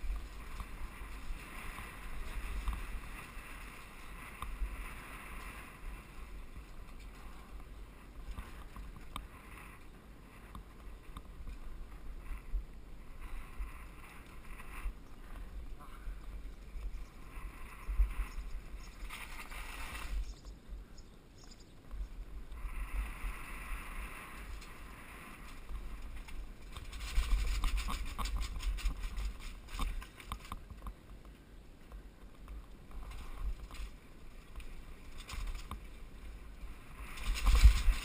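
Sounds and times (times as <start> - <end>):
wind buffeting microphone: 0.0 - 20.9, 32.9 - 38.0
bike rattling over cobblestones: 24.3 - 31.3, 32.0 - 38.0.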